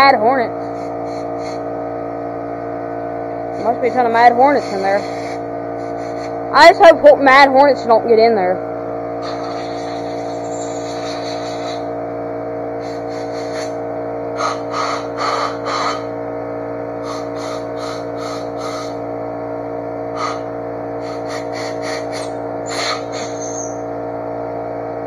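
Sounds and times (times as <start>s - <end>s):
air compressor humming: 0.0s - 25.0s
compressed air blow gun hissing: 4.6s - 6.3s, 9.2s - 11.8s, 12.8s - 13.8s, 17.0s - 19.0s, 20.2s - 23.7s.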